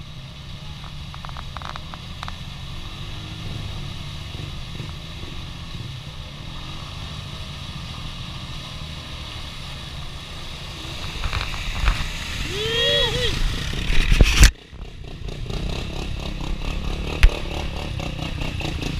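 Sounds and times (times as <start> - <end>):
atv engines running: 0.0 - 18.9
mud and water splashing: 0.4 - 14.5.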